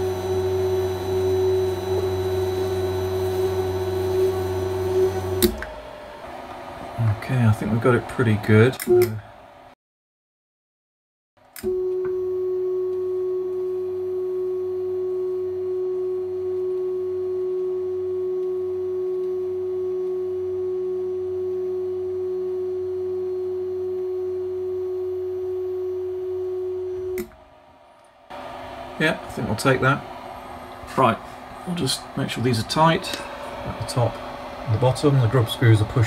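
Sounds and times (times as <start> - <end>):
steady hum with lower tone: 11.7 - 36.0.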